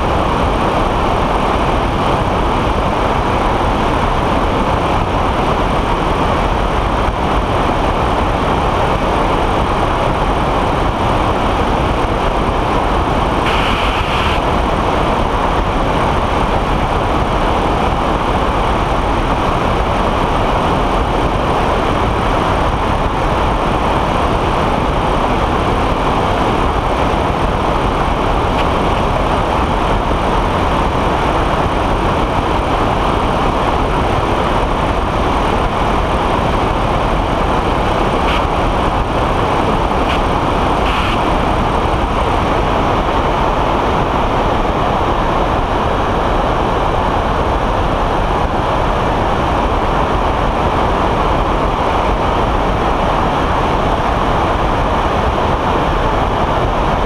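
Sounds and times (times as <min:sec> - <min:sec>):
engine and propeller drone: 0:00.0 - 0:57.0
wind rush on microphone: 0:00.0 - 0:57.0.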